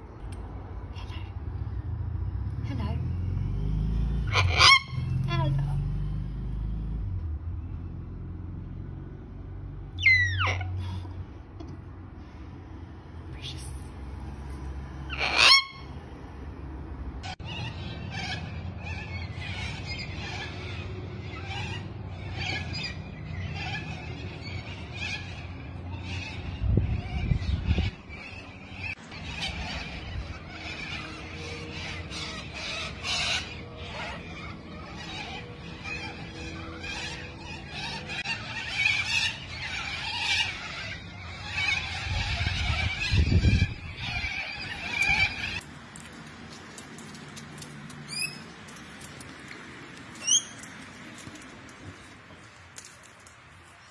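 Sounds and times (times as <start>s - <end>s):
flock of cockatoos calling: 4.2s - 5.2s, 9.9s - 11.0s, 15.1s - 15.9s, 17.2s - 46.1s, 47.0s - 48.5s, 49.5s - 53.0s.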